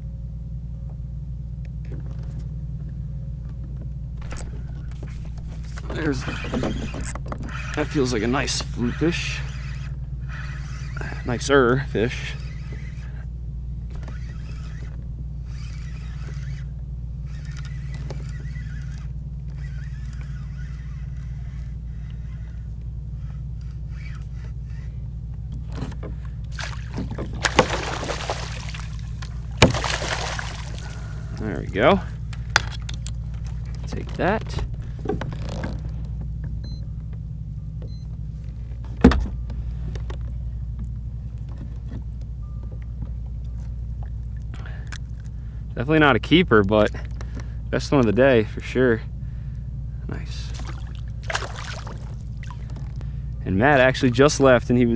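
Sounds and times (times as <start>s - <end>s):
steady low rumble: 0.0s - 54.9s
spinning reel cranking whir: 4.4s - 25.0s
small handling clicks: 32.3s - 34.2s.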